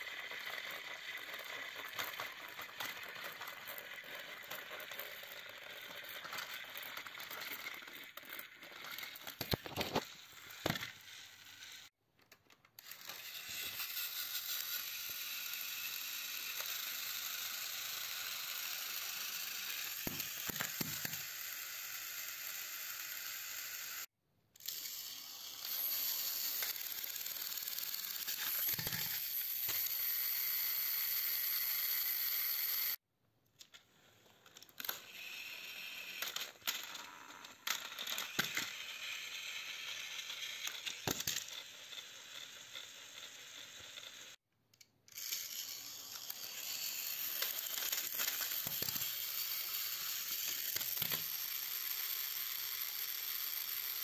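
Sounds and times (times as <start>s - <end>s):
toy train motors whirring: 0.0s - 33.0s, 33.6s - 54.0s.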